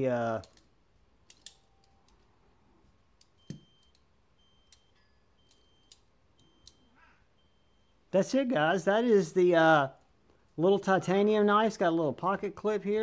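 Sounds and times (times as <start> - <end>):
pocket knife metallic clicks: 1.3 - 1.6.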